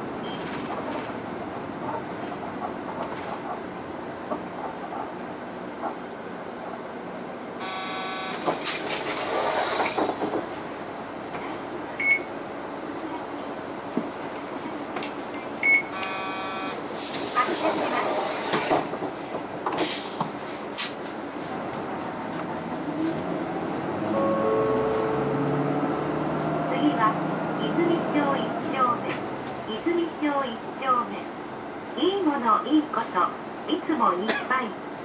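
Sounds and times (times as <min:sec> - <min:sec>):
bus interior running sound: 0:00.0 - 0:35.0
loud air hiss: 0:08.6 - 0:10.2, 0:16.9 - 0:18.8.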